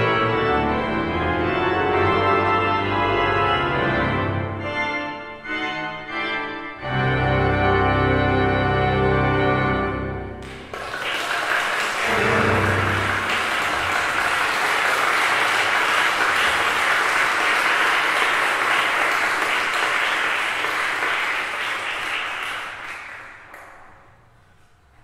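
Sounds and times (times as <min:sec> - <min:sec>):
audience applauding: 0:10.4 - 0:24.0.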